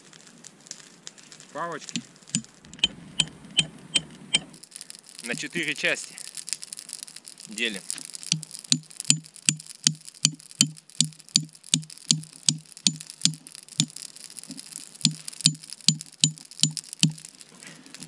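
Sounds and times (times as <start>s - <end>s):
axe tapping knife spine: 8.3s - 13.4s, 15.1s - 17.2s.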